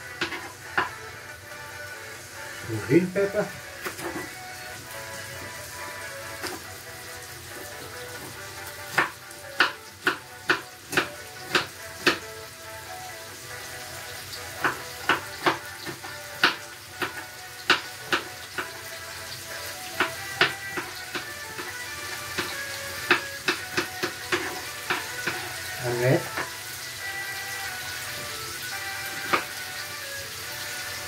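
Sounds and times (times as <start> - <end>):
meat sizzling in a pan: 0.0 - 31.0
knife chopping on wooden board: 8.9 - 12.3, 14.6 - 18.7, 19.9 - 25.5.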